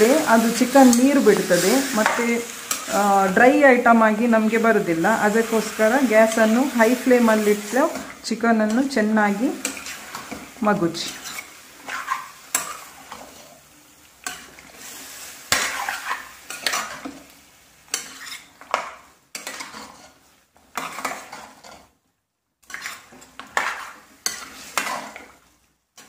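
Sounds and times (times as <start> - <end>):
pan sizzling: 0.0 - 22.0, 22.6 - 26.0
spoon scraping in pan: 0.0 - 22.0, 22.6 - 26.0
spoon clacking on pan: 9.6 - 13.4, 15.5 - 17.2, 17.9 - 21.9, 22.6 - 25.4.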